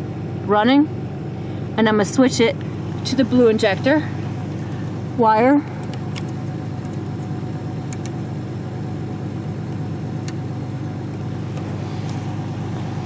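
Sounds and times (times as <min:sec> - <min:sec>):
car engine idling: 0:00.0 - 0:13.0.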